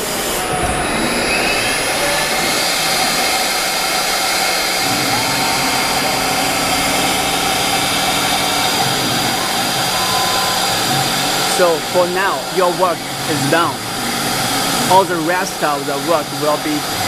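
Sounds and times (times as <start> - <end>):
cnc router spindle whine: 0.0 - 17.0
low machine hum: 0.0 - 17.0.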